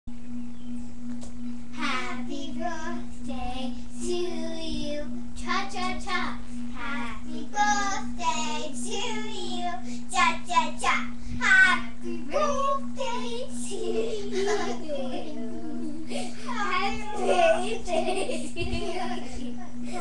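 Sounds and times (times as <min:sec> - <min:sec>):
steady hum: 0:00.1 - 0:20.0
girls singing: 0:11.4 - 0:17.9.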